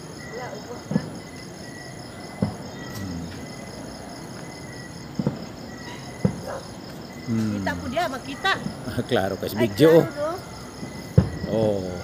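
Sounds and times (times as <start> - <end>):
crickets chirping: 0.0 - 12.0
distant firework bangs: 0.2 - 7.1, 10.2 - 11.9.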